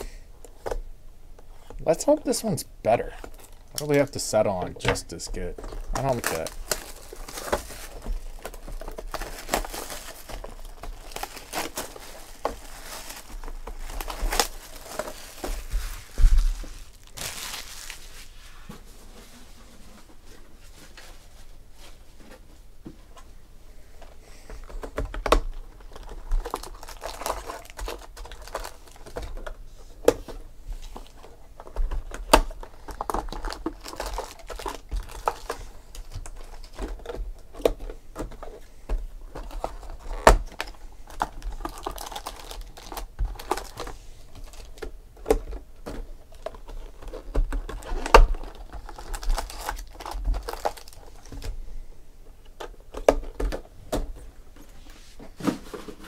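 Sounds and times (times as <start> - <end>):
plastic wrapper crinkling: 1.7 - 18.4, 25.0 - 29.6, 30.9 - 38.6, 39.3 - 51.6.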